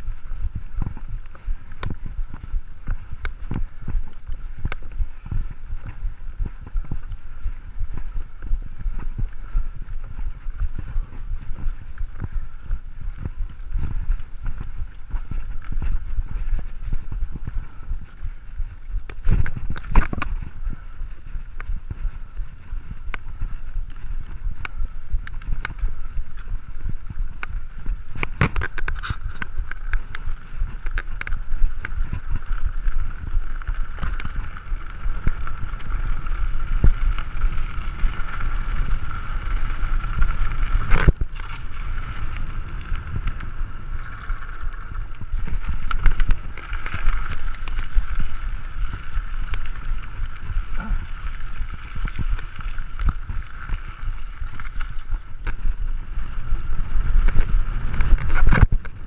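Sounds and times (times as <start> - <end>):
bike tyres rumbling on rough ground: 0.0 - 59.0
bike frame rattling and knocking: 35.0 - 39.5.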